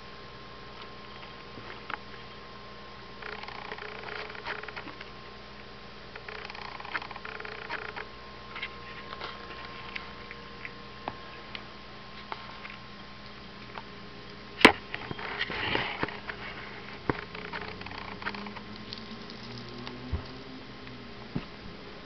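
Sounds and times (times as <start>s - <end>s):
cats crunching dry food: 6.2s - 10.8s, 15.2s - 21.1s
rustling: 14.3s - 22.0s.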